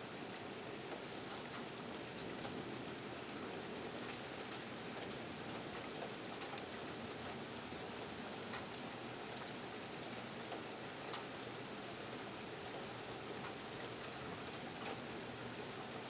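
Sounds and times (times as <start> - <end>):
steady heavy rain: 0.0 - 16.0.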